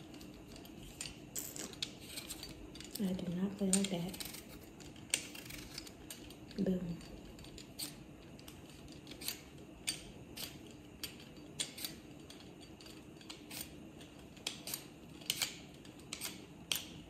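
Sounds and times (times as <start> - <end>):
peeler scraping potato: 1.6 - 8.0, 8.7 - 9.5.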